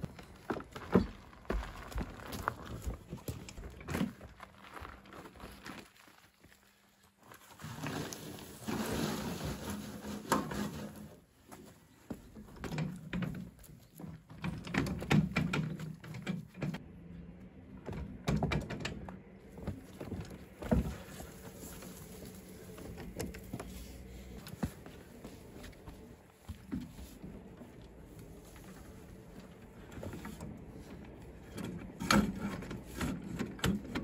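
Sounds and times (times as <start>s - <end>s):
soil sliding from wheelbarrow: 7.2s - 11.3s, 20.6s - 23.0s
wheelbarrow rattling on stony path: 7.4s - 11.3s
footsteps: 19.5s - 31.1s.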